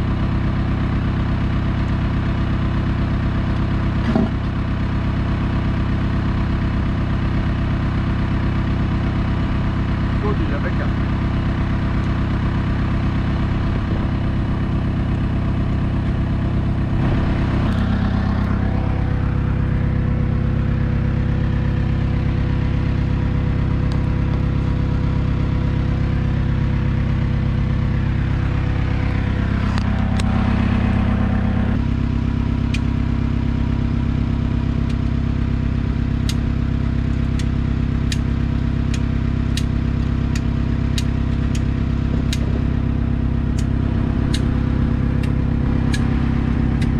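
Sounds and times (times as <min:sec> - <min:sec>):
engine idling: 0:00.0 - 0:46.9
light sharp ticks: 0:36.2 - 0:36.4, 0:38.9 - 0:41.7.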